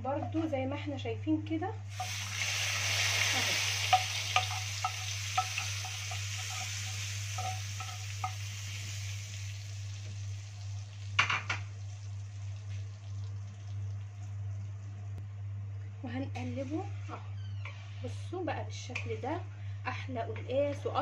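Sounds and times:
hot fat sizzling in a pot: 1.9s - 14.8s
steady low hum: 3.8s - 17.0s.

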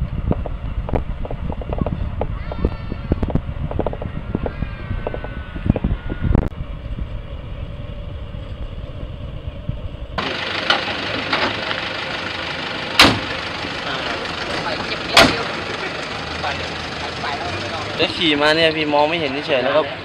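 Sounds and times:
train rumbling: 0.0s - 18.8s
vehicle engine idling: 0.0s - 20.0s
car door slamming: 13.0s - 13.3s, 15.1s - 15.5s.

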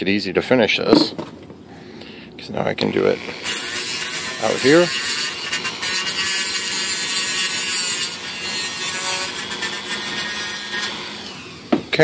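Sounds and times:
electric drill whining: 3.1s - 11.9s.

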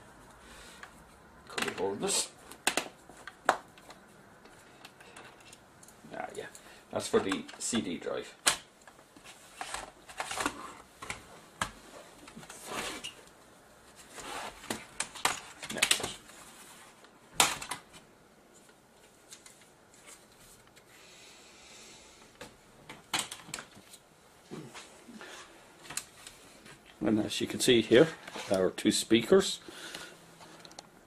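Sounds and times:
plastic cover clicking and snapping: 2.5s - 3.9s, 17.4s - 17.9s, 22.9s - 23.8s.

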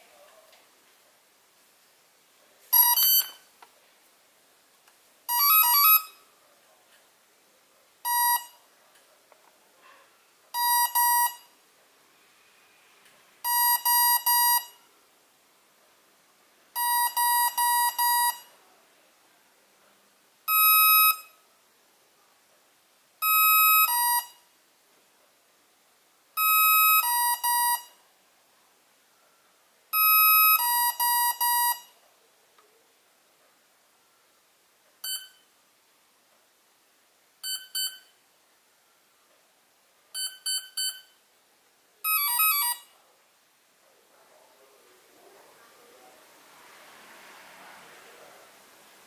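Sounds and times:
motor controller beeps: 2.7s - 3.4s, 37.4s - 38.1s, 40.2s - 41.2s.

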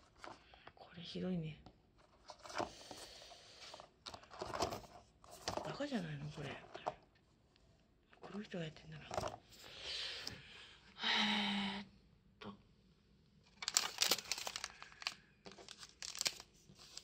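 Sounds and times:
foil sachets crinkling: 13.6s - 17.0s.

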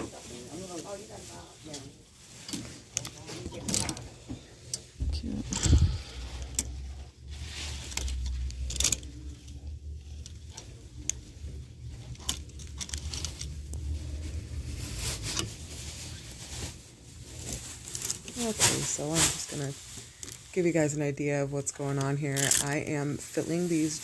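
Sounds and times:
hangers clicking on clothing rack: 2.4s - 4.1s, 7.9s - 9.3s, 21.9s - 22.8s
low handling rumble: 4.1s - 15.8s.

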